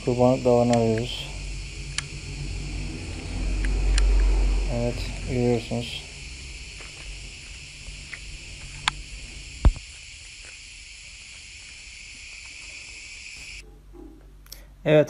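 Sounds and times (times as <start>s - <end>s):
insect chirring: 0.0s - 13.6s.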